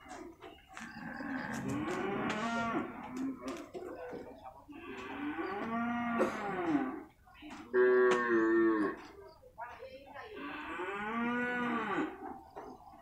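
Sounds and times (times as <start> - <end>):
water buffalo mooing: 1.0 - 3.4, 4.7 - 7.0, 10.4 - 12.2.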